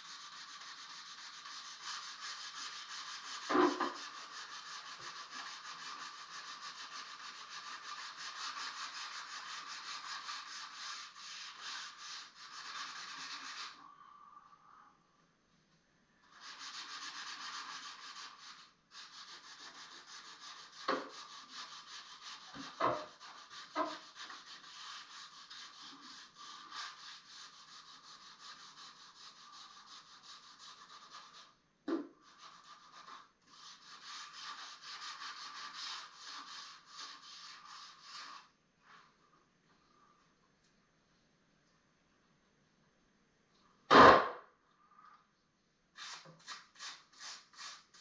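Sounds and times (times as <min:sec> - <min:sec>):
sandpaper rubbing on wood: 0:00.0 - 0:13.8, 0:16.3 - 0:31.6, 0:32.2 - 0:38.5, 0:46.0 - 0:48.0.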